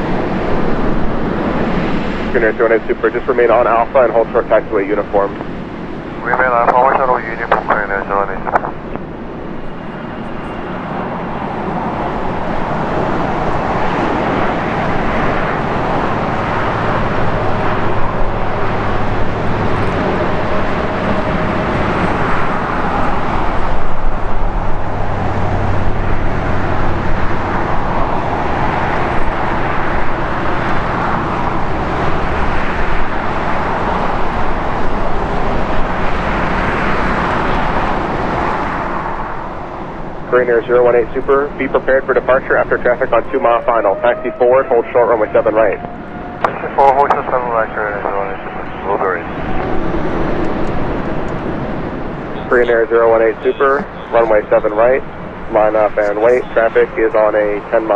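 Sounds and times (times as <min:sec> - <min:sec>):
jet engines rushing: 0:00.0 - 0:57.9.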